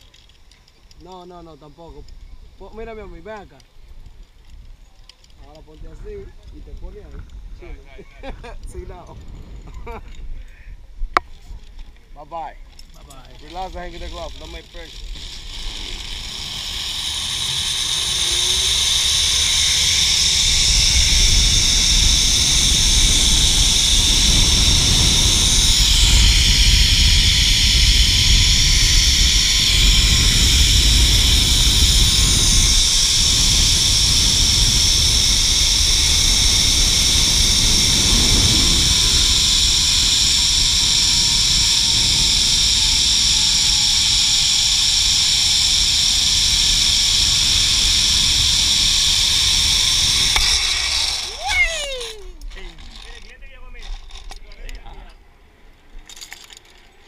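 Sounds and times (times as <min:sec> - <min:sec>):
wind rumbling on microphone: 0:00.8 - 0:55.0
zipline pulleys whirring: 0:12.7 - 0:57.0.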